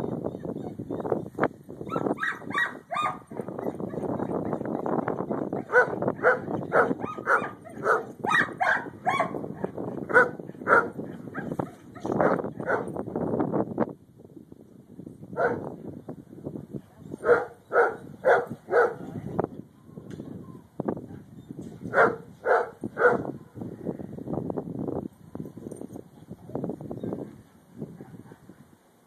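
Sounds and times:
dog barking: 0:01.9 - 0:03.5, 0:05.6 - 0:09.4, 0:10.1 - 0:12.9, 0:15.4 - 0:15.6, 0:17.2 - 0:19.1, 0:21.9 - 0:23.3.

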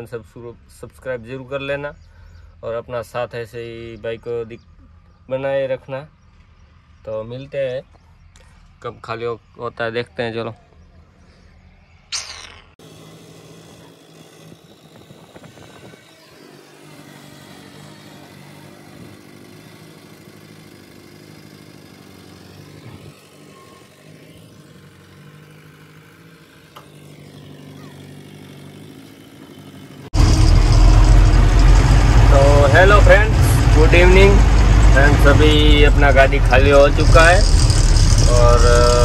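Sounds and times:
crane diesel engine droning: 0:12.8 - 0:39.0.

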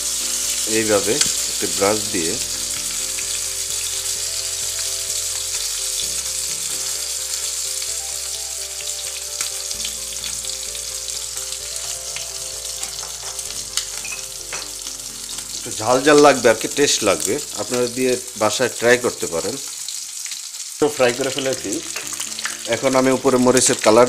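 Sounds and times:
fish sizzling in hot oil: 0:00.0 - 0:24.0.

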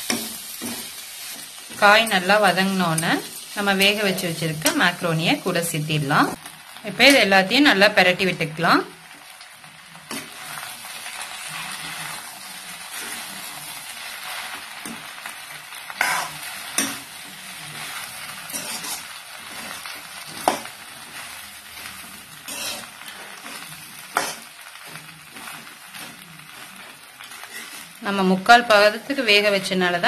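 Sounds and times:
food sizzling in frying pan: 0:00.0 - 0:30.0
metal spoon scraping food: 0:10.1 - 0:10.8, 0:16.0 - 0:21.2, 0:22.0 - 0:27.9.

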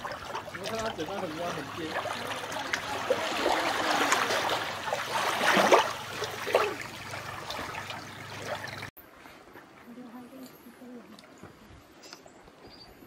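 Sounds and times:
small waves lapping on beach: 0:00.0 - 0:08.9.

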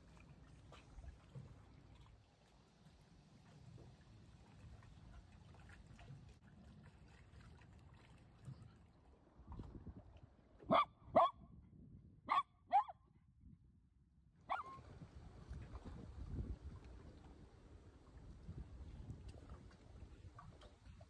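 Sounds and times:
dog barking: 0:10.7 - 0:11.4, 0:12.3 - 0:12.9, 0:14.5 - 0:14.8.

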